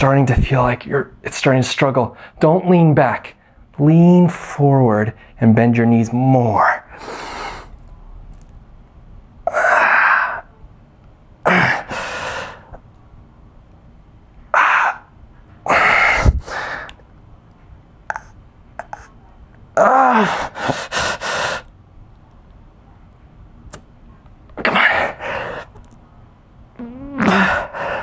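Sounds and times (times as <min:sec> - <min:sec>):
man breathing heavily: 0:11.5 - 0:12.8, 0:15.7 - 0:16.9, 0:20.2 - 0:21.7.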